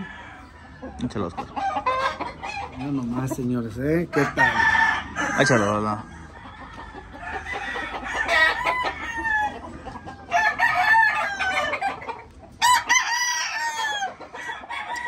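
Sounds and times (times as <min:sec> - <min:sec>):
roosters crowing: 0:00.0 - 0:15.0.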